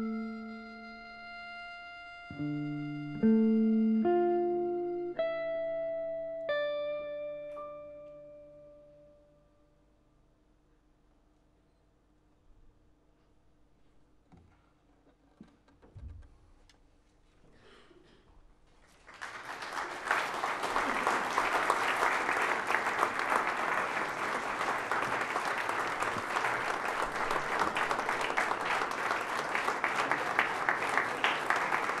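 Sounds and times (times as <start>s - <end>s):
audience applause: 18.8s - 32.0s.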